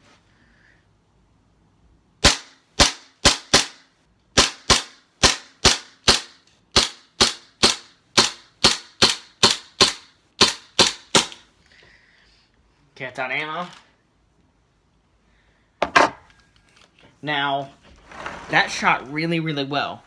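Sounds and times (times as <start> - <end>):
airsoft pistol shots: 2.2 - 3.8, 4.4 - 11.4.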